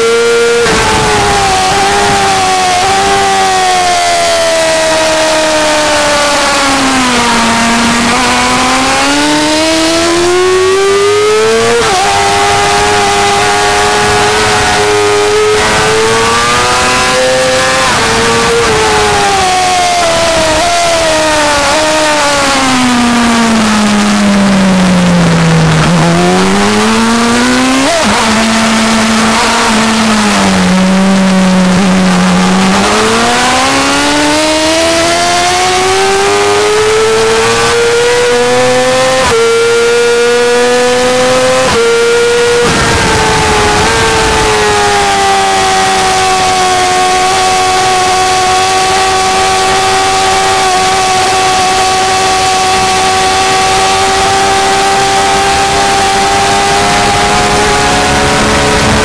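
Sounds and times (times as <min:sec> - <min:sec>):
motorcycle engine at speed: 0:00.0 - 0:59.0
wind noise: 0:00.6 - 0:04.9, 0:41.3 - 0:47.8.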